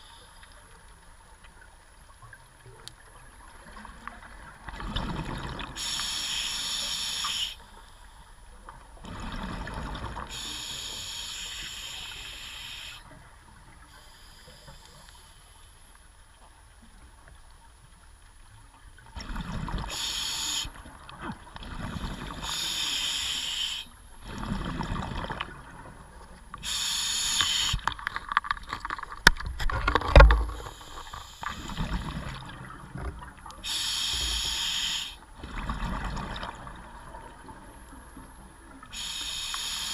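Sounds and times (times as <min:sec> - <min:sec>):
exhaled bubbles rumbling: 0:03.2 - 0:05.8, 0:09.0 - 0:10.4, 0:19.1 - 0:20.0, 0:24.2 - 0:26.5, 0:35.4 - 0:38.7
regulator hissing inhalations: 0:05.8 - 0:07.8, 0:10.3 - 0:13.1, 0:19.9 - 0:20.8, 0:22.4 - 0:24.0, 0:26.6 - 0:27.8, 0:30.6 - 0:31.8, 0:33.6 - 0:35.2, 0:38.9 - 0:39.9.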